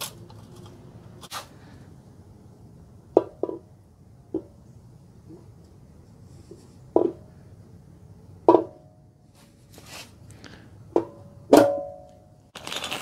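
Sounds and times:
faint metal scrape: 0:09.3 - 0:10.2
metal knocks with short ring: 0:11.0 - 0:12.1.

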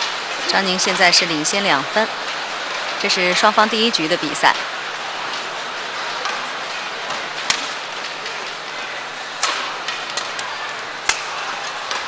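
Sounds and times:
hall background noise: 0:00.0 - 0:12.0
racket hitting shuttlecock: 0:07.5 - 0:07.7, 0:11.0 - 0:12.0.

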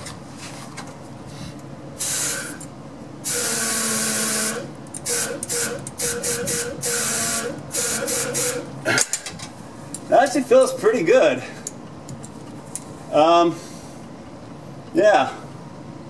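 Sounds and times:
compressed air hissing: 0:01.3 - 0:02.6, 0:03.2 - 0:08.7.

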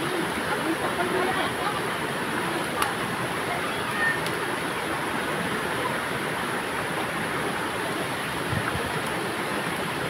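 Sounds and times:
flowing stream water: 0:00.0 - 0:10.0.

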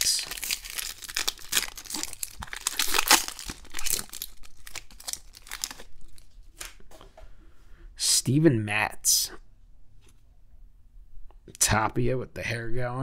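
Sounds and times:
plastic wrapper tearing and crinkling: 0:00.0 - 0:06.4.

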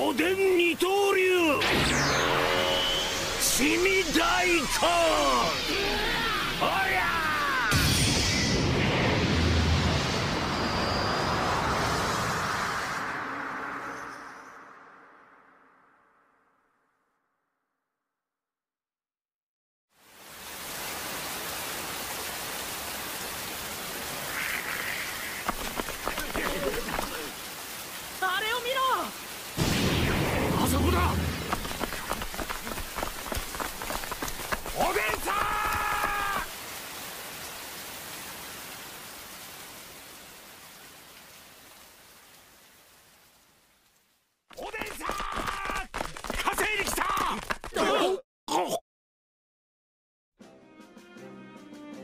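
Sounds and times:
heavy rain falling: 0:02.2 - 0:07.8, 0:20.0 - 0:47.6.

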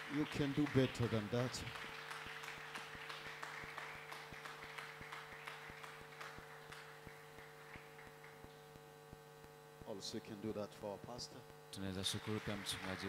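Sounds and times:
congregation applauding: 0:00.0 - 0:08.6, 0:12.0 - 0:13.0
steady electrical hum: 0:00.0 - 0:13.0.

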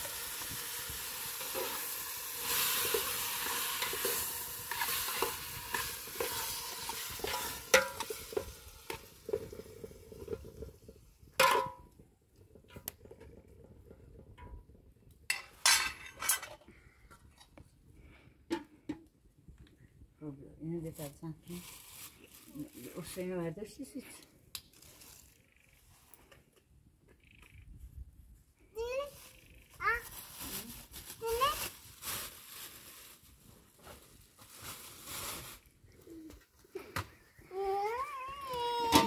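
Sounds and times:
tomatoes sizzling in a pot: 0:00.0 - 0:16.5, 0:20.8 - 0:23.8, 0:28.8 - 0:36.2, 0:36.9 - 0:39.0
metal spoon scraping a pot: 0:01.4 - 0:10.5.

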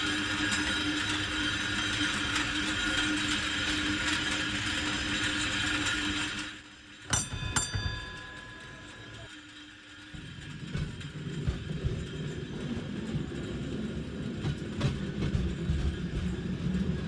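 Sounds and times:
cable running over pulleys: 0:00.0 - 0:17.0
sharp ringing strikes: 0:07.1 - 0:09.3.

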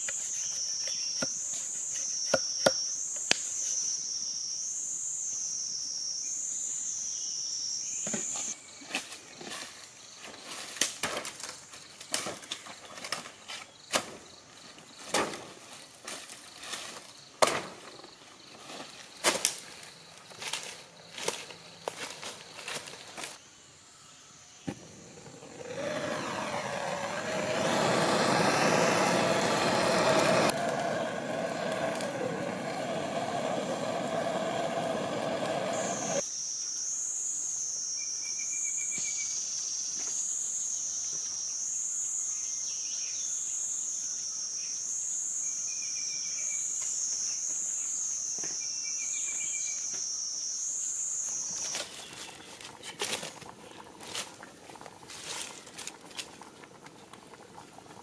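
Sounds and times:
bird chirps: 0:00.2 - 0:04.6
insect buzzing: 0:24.3 - 0:38.1
blowtorch roaring hiss: 0:24.8 - 0:36.2.

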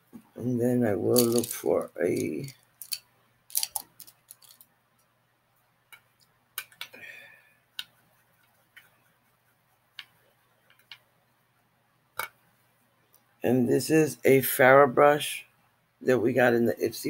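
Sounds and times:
makeup brushes clicking and tapping: 0:02.2 - 0:04.6, 0:06.0 - 0:07.0, 0:10.0 - 0:11.1.

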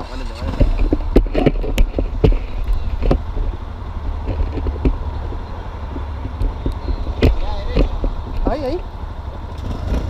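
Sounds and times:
motorcycle idling: 0:00.0 - 0:10.0
camera handling knocks and rubbing: 0:00.6 - 0:08.5.

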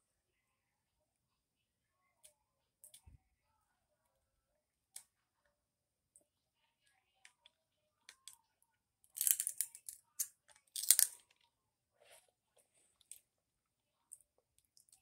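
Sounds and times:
crunching and chewing: 0:09.1 - 0:11.4.

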